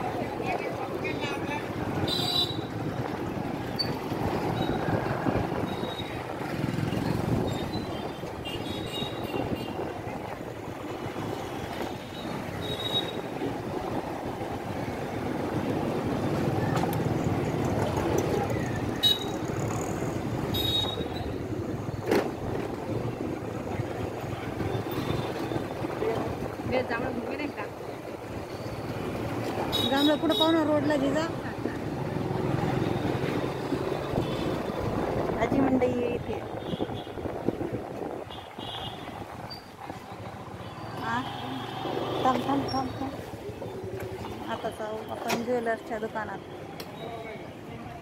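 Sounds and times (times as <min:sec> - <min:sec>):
crowd chatter: 0:00.0 - 0:08.0, 0:14.0 - 0:20.4
traffic noise: 0:00.0 - 0:48.0.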